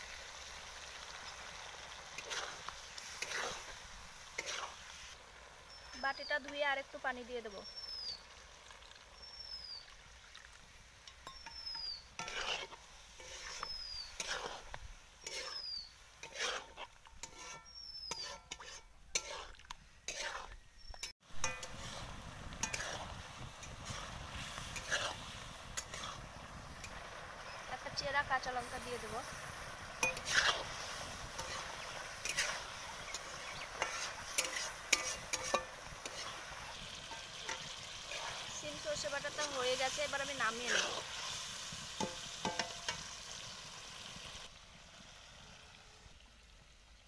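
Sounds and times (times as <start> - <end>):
gravy sizzling: 0.0 - 47.0
metal spatula stirring curry: 2.1 - 4.8, 11.2 - 20.6, 21.4 - 26.2, 29.8 - 43.1.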